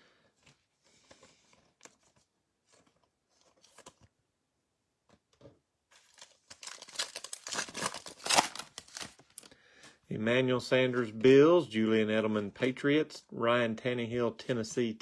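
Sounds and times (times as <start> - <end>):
foil wrapper crinkling and tearing: 6.0 - 9.5.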